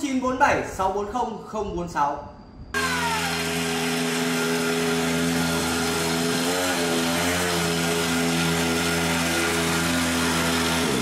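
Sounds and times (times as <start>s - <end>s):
small engine idling fast: 2.8s - 11.0s.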